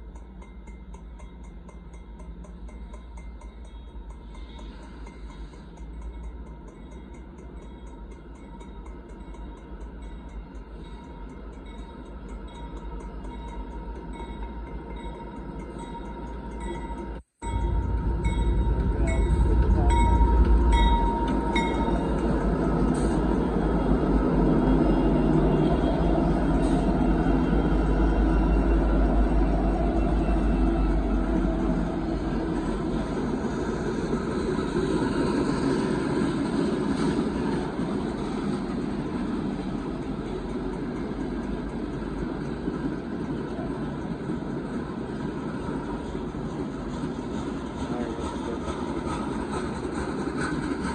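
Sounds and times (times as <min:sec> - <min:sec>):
crossing bell dinging: 0:00.0 - 0:31.4
freight train rumbling past: 0:00.0 - 0:50.9.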